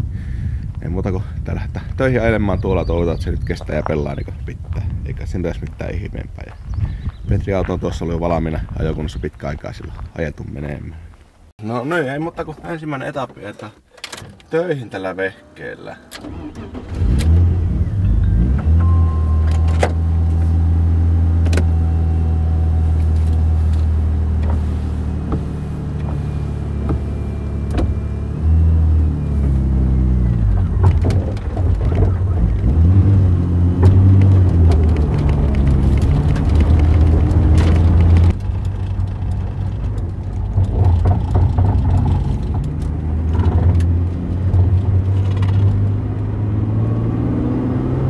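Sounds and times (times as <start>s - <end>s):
car engine idling and revving: 15.7s - 48.0s.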